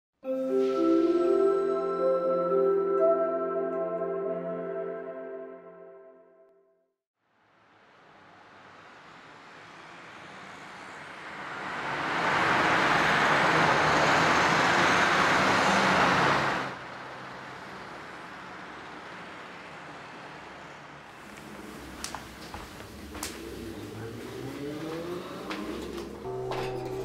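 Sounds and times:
city street traffic: 7.4s - 27.0s.

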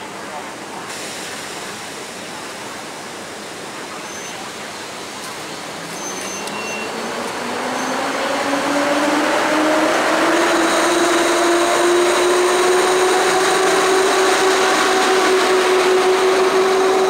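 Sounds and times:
electric locomotive whine: 5.8s - 17.0s.

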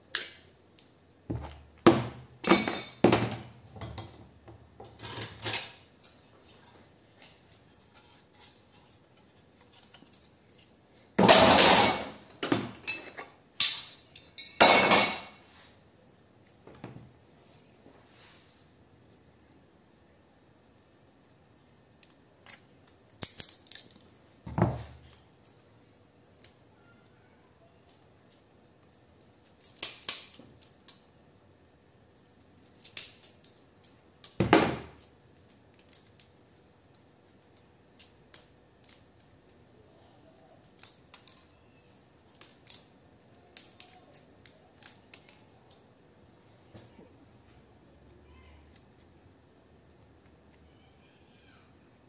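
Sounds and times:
small plastic pieces clicking: 20.7s - 24.2s, 27.8s - 31.1s, 32.1s - 34.4s, 40.3s - 41.6s, 42.2s - 45.9s
plastic cracking and snapping: 21.7s - 24.1s, 27.9s - 31.1s, 40.4s - 41.6s, 42.2s - 45.9s.

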